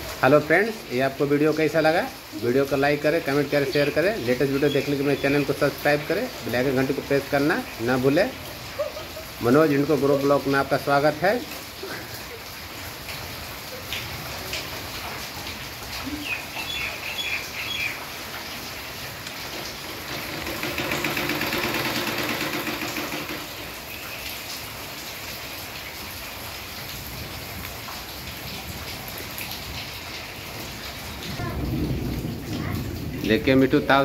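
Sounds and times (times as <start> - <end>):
steady rain falling: 0.0 - 34.0.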